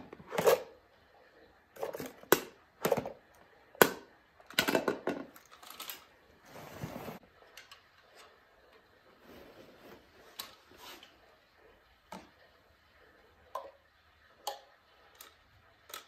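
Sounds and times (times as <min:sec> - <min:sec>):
plastic scrape: 0:06.4 - 0:07.2.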